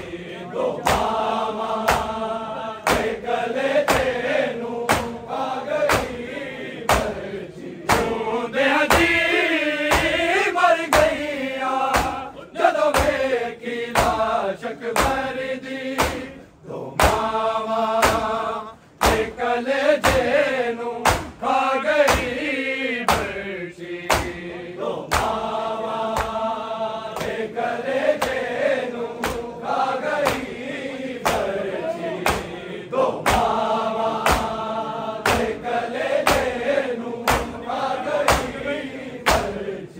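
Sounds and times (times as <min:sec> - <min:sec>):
men chanting a lament: 0:00.0 - 0:39.9
sharp hand slaps: 0:00.8 - 0:02.2, 0:02.8 - 0:07.2, 0:07.8 - 0:08.2, 0:08.9 - 0:09.3, 0:09.9 - 0:10.3, 0:10.9 - 0:11.3, 0:11.9 - 0:12.3, 0:12.9 - 0:14.3, 0:14.9 - 0:15.3, 0:15.9 - 0:16.4, 0:17.0 - 0:17.3, 0:18.0 - 0:18.4, 0:19.0 - 0:19.4, 0:20.0 - 0:20.4, 0:21.0 - 0:21.4, 0:22.0 - 0:22.4, 0:23.0 - 0:23.4, 0:24.0 - 0:24.4, 0:25.1 - 0:25.5, 0:26.1 - 0:26.4, 0:27.2 - 0:27.4, 0:28.1 - 0:28.5, 0:29.1 - 0:29.5, 0:30.2 - 0:30.6, 0:31.2 - 0:31.6, 0:32.2 - 0:32.6, 0:33.2 - 0:33.6, 0:34.2 - 0:34.6, 0:35.2 - 0:35.6, 0:36.2 - 0:36.6, 0:37.2 - 0:37.6, 0:38.2 - 0:38.6, 0:39.2 - 0:39.6.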